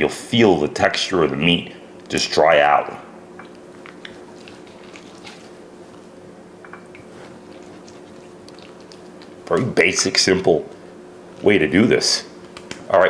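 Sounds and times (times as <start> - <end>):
steady low hum: 0.0 - 13.0
hands squishing raw meat: 3.4 - 6.2, 7.0 - 10.8.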